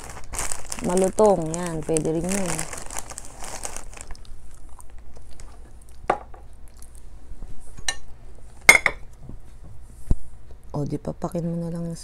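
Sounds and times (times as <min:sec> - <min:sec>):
plastic bag rustling: 0:00.0 - 0:05.7.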